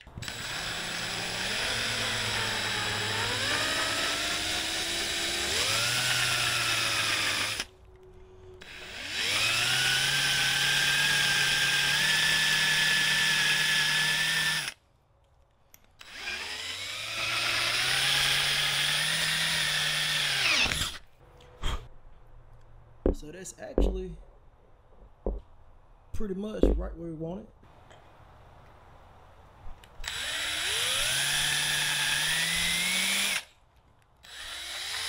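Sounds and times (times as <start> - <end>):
electric drill boring through metal: 0.0 - 7.7, 8.6 - 14.8, 16.0 - 21.1, 30.0 - 33.5, 34.2 - 35.0.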